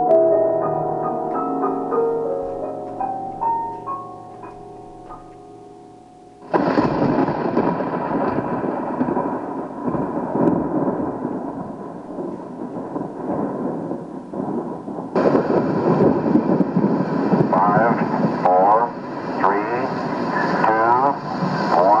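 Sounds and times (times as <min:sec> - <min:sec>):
rushing roar of rain: 0:06.4 - 0:22.0.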